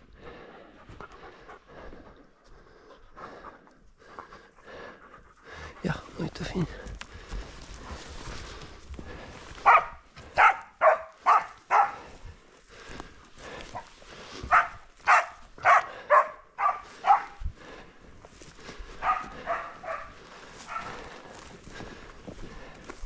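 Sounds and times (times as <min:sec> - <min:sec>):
dog barking: 0:09.6 - 0:12.2, 0:14.5 - 0:17.4, 0:19.0 - 0:21.0.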